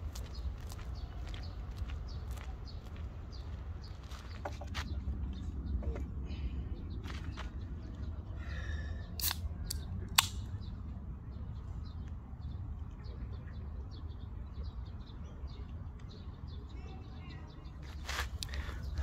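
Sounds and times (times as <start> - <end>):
small birds chirping: 0.0 - 19.0
sharp clicks: 9.2 - 10.5.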